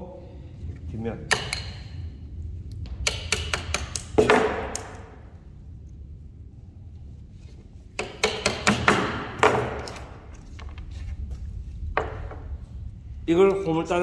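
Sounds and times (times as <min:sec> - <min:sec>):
chisel knocking on wood: 0:01.3 - 0:01.8, 0:03.0 - 0:04.9, 0:08.0 - 0:10.1.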